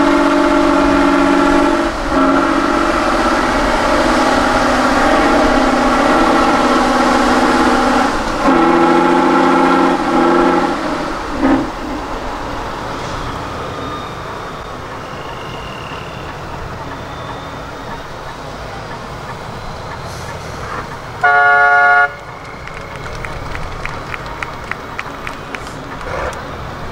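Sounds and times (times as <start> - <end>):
truck engine revving: 0.0 - 26.9
horn toot: 8.4 - 10.5, 21.2 - 22.3.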